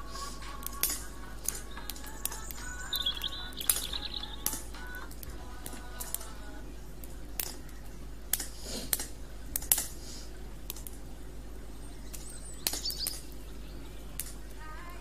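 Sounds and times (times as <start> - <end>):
bird chirping: 0.0 - 5.1, 11.1 - 14.6
campfire crackling and popping: 0.0 - 15.0.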